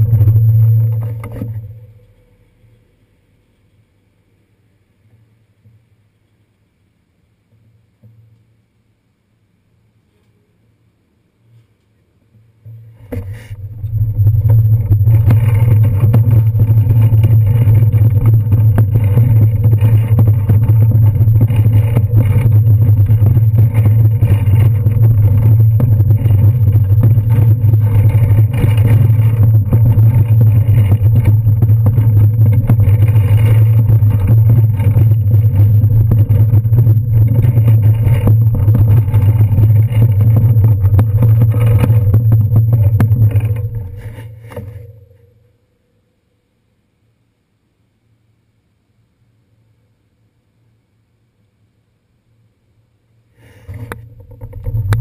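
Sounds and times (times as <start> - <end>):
bicycle rolling over brick paving: 0.0 - 2.9, 12.7 - 45.4, 53.5 - 55.0.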